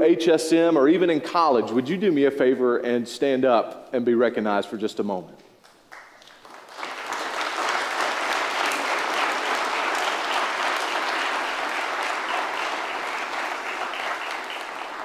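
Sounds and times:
congregation applauding: 0:05.6 - 0:15.0.

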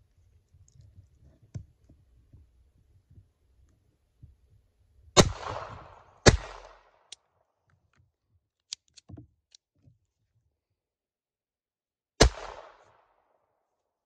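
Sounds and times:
pistol shots echoing: 0:05.2 - 0:07.1, 0:12.2 - 0:13.1.

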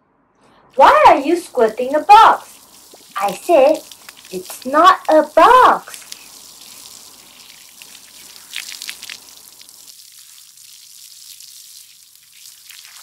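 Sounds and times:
low background hiss: 0:00.8 - 0:09.9.

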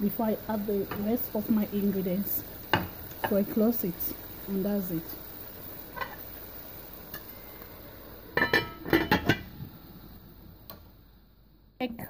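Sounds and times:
simmering pot hiss: 0:00.0 - 0:12.0
pot lid clanking: 0:08.4 - 0:09.5.

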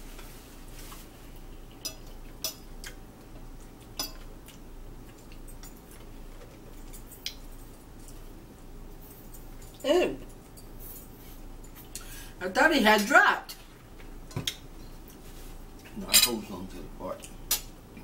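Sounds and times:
low room hum: 0:00.0 - 0:18.0
fork clinking on a plate: 0:04.0 - 0:04.3.

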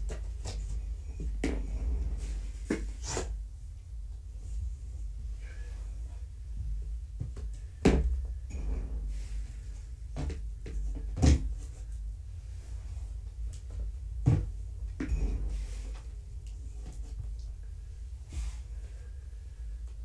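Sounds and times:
low steady hum: 0:00.0 - 0:20.0
dull knocks and thumps: 0:06.5 - 0:11.9, 0:13.6 - 0:16.1.

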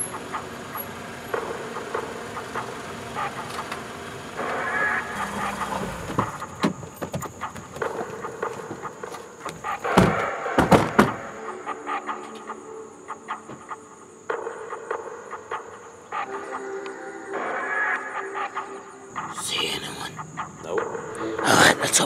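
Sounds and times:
car doors opening and shutting: 0:00.0 - 0:11.4.

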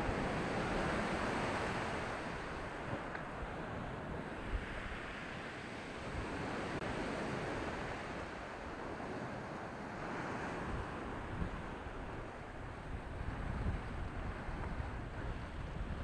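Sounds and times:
surf washing against rocks: 0:00.0 - 0:16.0
wind buffeting microphone: 0:00.0 - 0:16.0.

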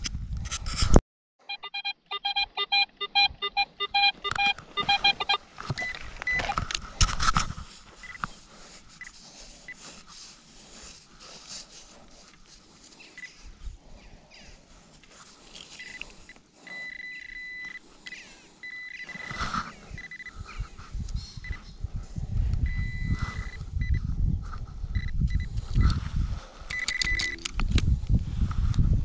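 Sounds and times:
pinpointer high beeps: 0:01.5 - 0:06.6, 0:15.8 - 0:19.4, 0:20.0 - 0:20.3, 0:22.7 - 0:24.0, 0:24.9 - 0:25.5, 0:26.7 - 0:27.4
sand scraped by hand: 0:07.1 - 0:13.2.

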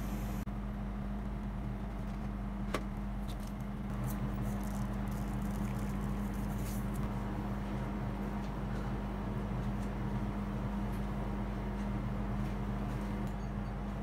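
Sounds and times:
refrigeration unit humming: 0:00.0 - 0:14.0
sprinkles rattling in shaker: 0:04.1 - 0:07.0.

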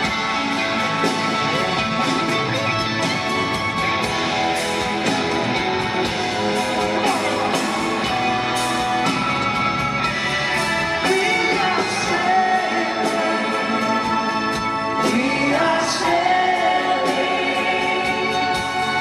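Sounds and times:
drums: 0:00.0 - 0:19.0
electric guitars: 0:00.0 - 0:19.0
person singing: 0:06.4 - 0:09.2, 0:10.6 - 0:19.0.

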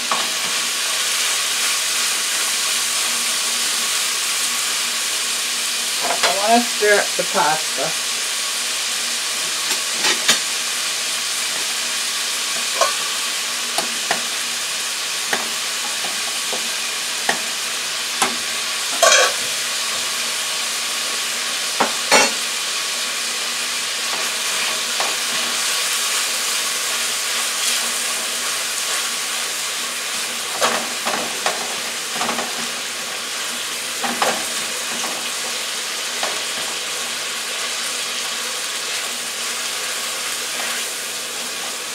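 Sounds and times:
meat sizzling in a skillet: 0:00.0 - 0:41.9.

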